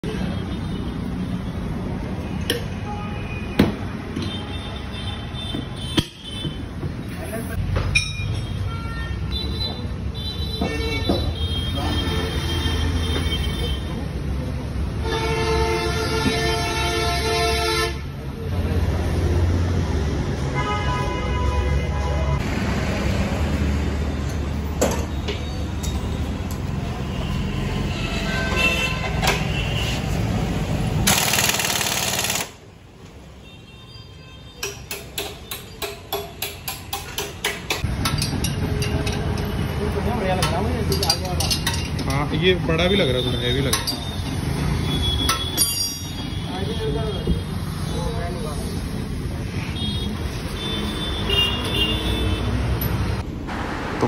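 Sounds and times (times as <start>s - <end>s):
low rumble of street traffic: 0.0s - 54.0s
metal clanks: 40.3s - 42.3s.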